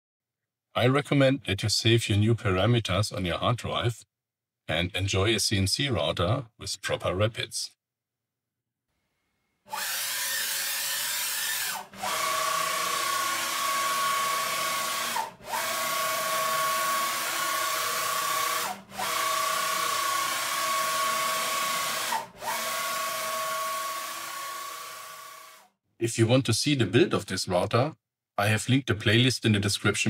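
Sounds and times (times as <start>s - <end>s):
servo motor whine: 9.7s - 25.7s.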